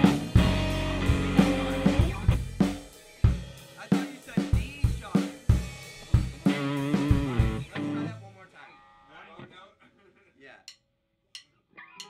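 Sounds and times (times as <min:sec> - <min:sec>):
guitar chords ringing: 0:00.0 - 0:02.7, 0:06.4 - 0:08.2
drum kit playing: 0:00.0 - 0:08.2.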